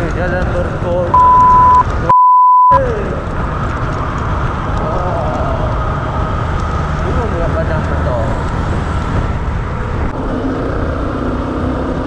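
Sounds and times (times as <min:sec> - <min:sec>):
electronic beep tone: 0:01.2 - 0:02.8
wind noise: 0:02.8 - 0:11.6
motorcycle engine rumble: 0:02.8 - 0:12.0.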